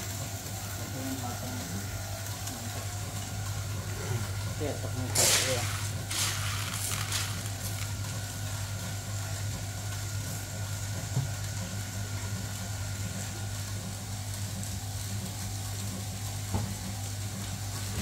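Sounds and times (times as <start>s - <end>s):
gas burner flame: 0.0s - 18.0s
stirrer motor humming: 0.0s - 18.0s.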